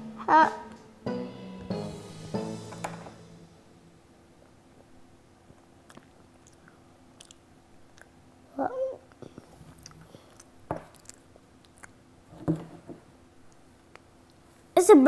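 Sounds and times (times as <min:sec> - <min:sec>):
knock: 0:02.7 - 0:03.2.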